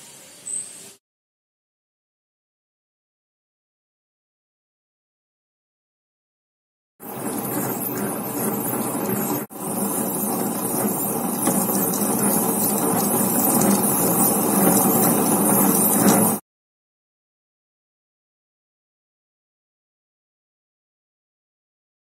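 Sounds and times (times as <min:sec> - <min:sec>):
wet grinder running: 0:07.0 - 0:16.4.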